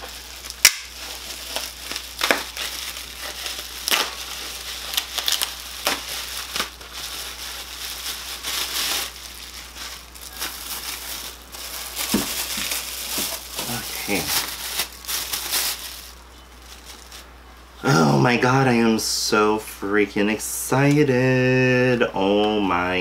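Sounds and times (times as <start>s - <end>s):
packaging crinkling and rustling: 0.0s - 17.3s.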